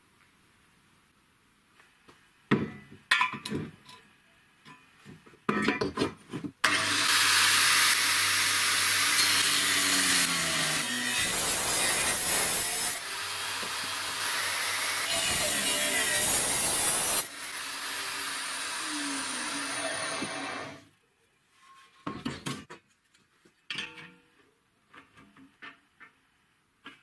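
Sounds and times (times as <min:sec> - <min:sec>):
grinder disc cutting steel: 0:06.6 - 0:20.9
angle grinder running: 0:06.7 - 0:20.8.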